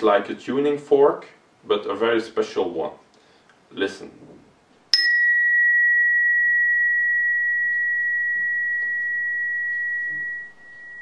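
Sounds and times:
tuning fork ringing: 4.9 - 11.0.

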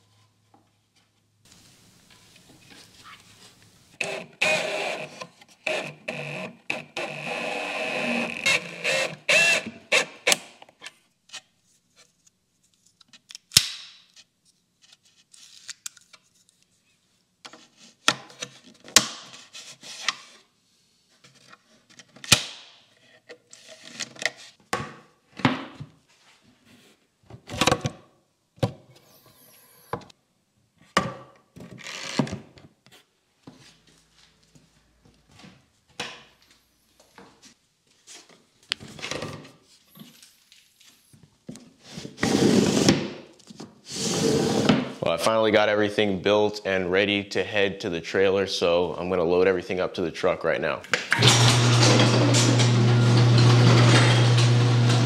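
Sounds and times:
cordless drill running: 4.0 - 10.3, 51.1 - 55.0.

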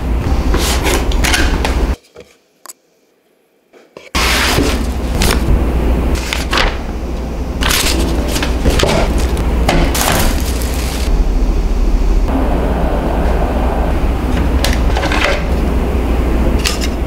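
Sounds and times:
steady low hum: 0.0 - 2.0, 4.2 - 17.0
plastic wrapping crinkling: 7.7 - 11.1.

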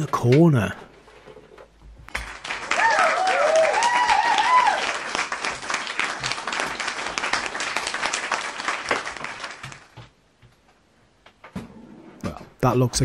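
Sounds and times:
crowd applauding: 2.1 - 10.0.

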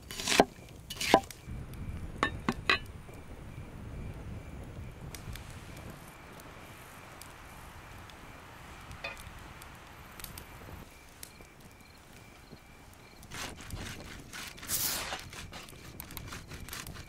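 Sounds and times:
fire snapping: 0.0 - 17.0
wood fire crackling: 0.0 - 17.0
faint insect chirping: 0.5 - 13.3.

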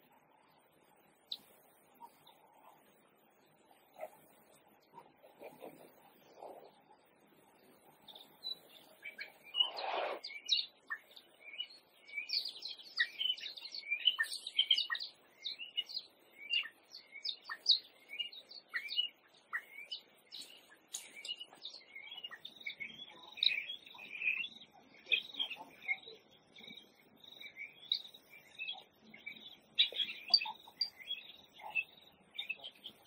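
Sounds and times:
high-pitched chirping calls: 8.2 - 33.0.

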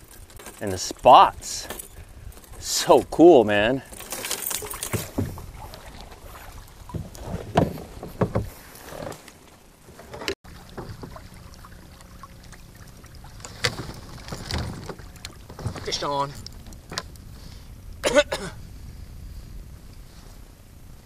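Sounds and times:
wind noise: 0.0 - 8.8, 10.6 - 21.0
water noise: 0.0 - 21.0
knocks and rustling of handling: 3.8 - 11.3, 13.3 - 17.1.

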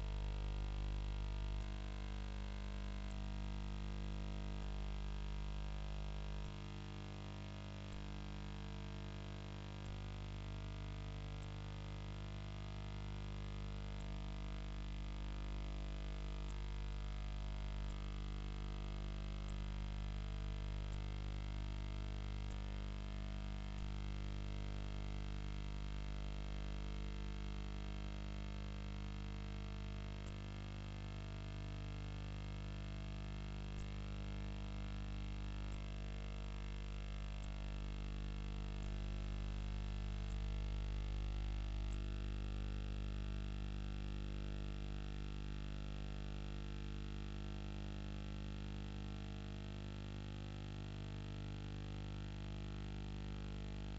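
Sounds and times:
electrical mains hum: 0.0 - 26.4, 27.0 - 44.1
faint ticks: 6.3 - 24.2, 30.0 - 42.2.

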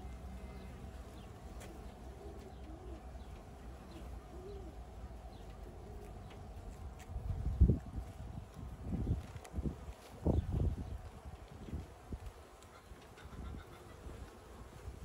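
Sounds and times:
bird cooing: 0.0 - 6.6
birds chirping: 0.0 - 15.0.

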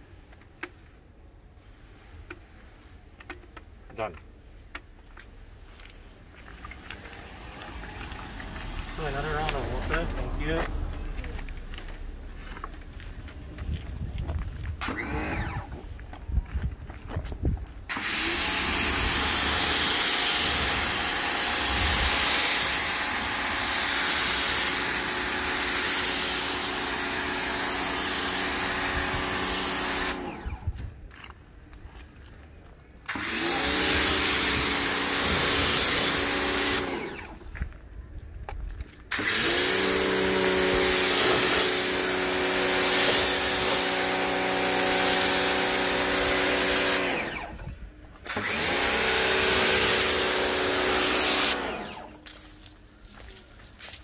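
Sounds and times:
pressure washer motor hum: 14.8 - 15.8, 17.9 - 30.8, 33.1 - 37.4, 39.1 - 52.2
water jet spraying hiss: 17.9 - 30.4, 39.1 - 47.3.

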